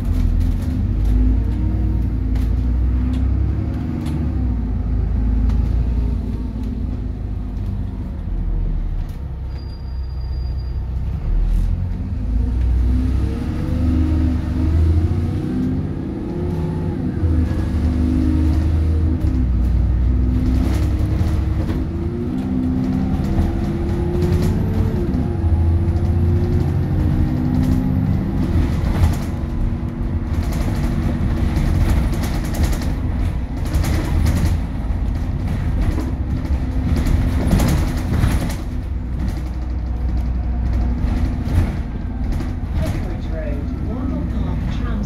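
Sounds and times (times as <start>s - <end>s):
bus engine drone: 0.0s - 45.0s
road noise: 0.0s - 45.0s
interior rattles: 25.9s - 45.0s.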